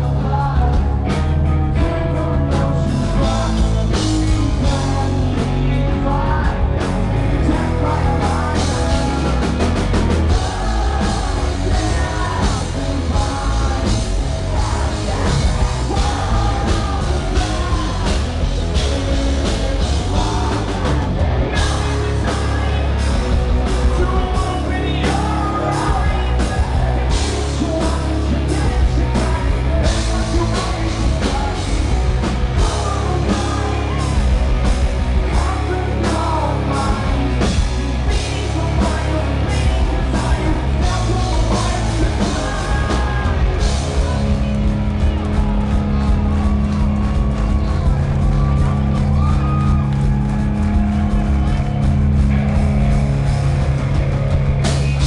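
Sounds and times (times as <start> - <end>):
man singing and shouting: 0.0 - 46.3
bass: 0.0 - 55.0
drum kit: 0.0 - 55.0
electric guitars: 0.0 - 55.0.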